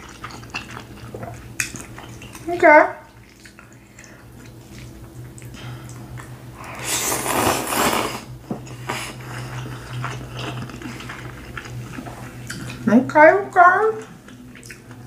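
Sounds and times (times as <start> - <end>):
wet chewing and lip-smacking: 0.0 - 2.5, 3.1 - 6.4, 8.6 - 12.9, 13.9 - 15.0
low steady hum: 0.0 - 15.0
loud noodle slurp: 6.7 - 8.3.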